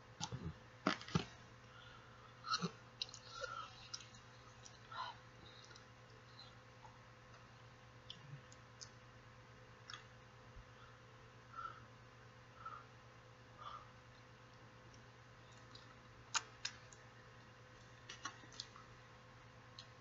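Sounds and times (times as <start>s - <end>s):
person chewing food: 2.6s - 7.0s.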